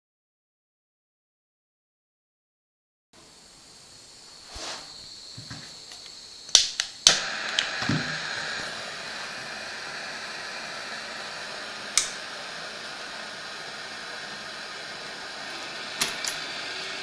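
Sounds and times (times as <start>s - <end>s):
gas flame hissing: 3.2s - 17.0s
torch igniter clicks: 5.9s - 17.0s.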